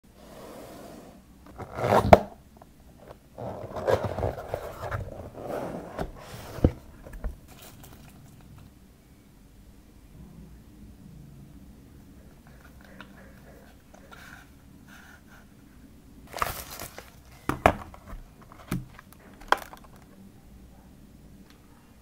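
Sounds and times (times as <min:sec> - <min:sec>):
soft rustling of packaging: 0:02.9 - 0:08.8, 0:12.2 - 0:20.3.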